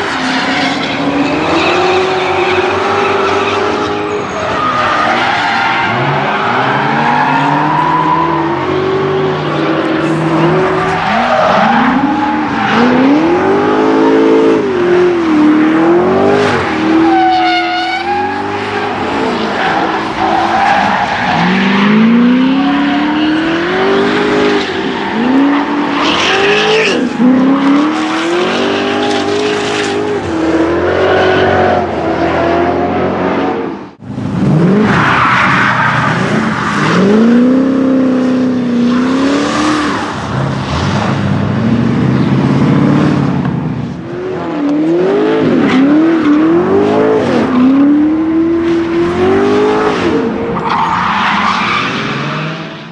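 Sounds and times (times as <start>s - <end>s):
tyres screeching: 0.0s - 15.5s
car engine revving hard: 7.4s - 20.1s.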